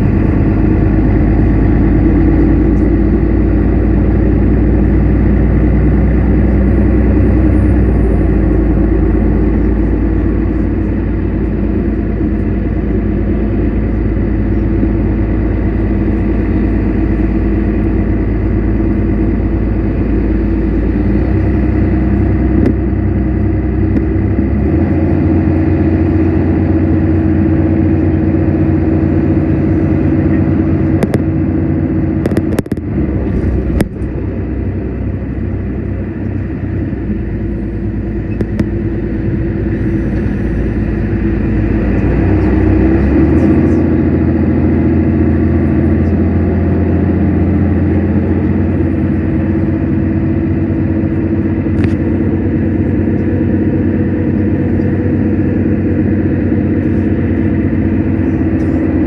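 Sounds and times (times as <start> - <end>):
bus engine drone: 0.0 - 59.0
road and tyre noise: 0.0 - 59.0
sharp clicks and rattles: 32.2 - 32.9.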